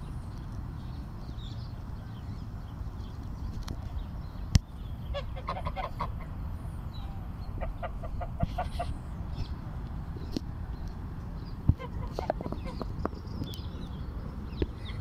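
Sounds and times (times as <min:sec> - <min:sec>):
geese honking: 0:05.1 - 0:06.4, 0:07.6 - 0:09.0, 0:11.7 - 0:12.9.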